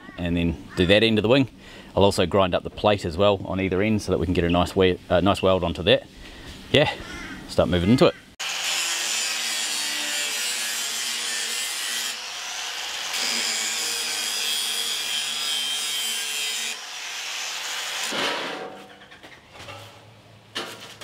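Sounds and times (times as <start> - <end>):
angle grinder grinding steel: 8.4 - 18.1.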